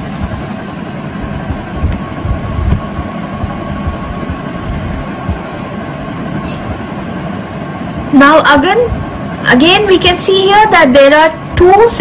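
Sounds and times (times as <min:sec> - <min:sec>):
steady hum and low rumble: 0:00.0 - 0:12.0
low thumps: 0:01.2 - 0:05.6.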